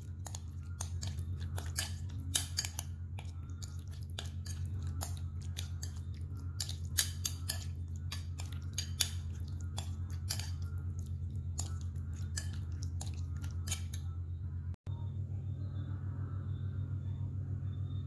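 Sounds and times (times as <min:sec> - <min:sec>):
spoon scraping ceramic bowl: 0:00.0 - 0:14.1
steady low hum: 0:00.0 - 0:18.0.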